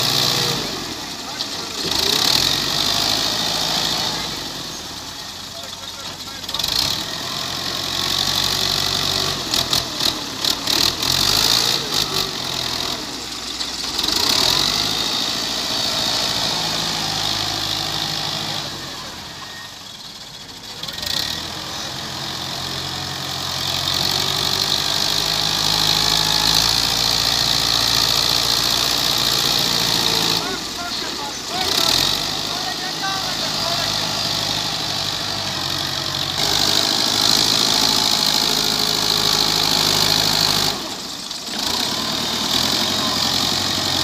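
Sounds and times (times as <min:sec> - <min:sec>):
tractor diesel engine under load: 0:00.0 - 0:44.0.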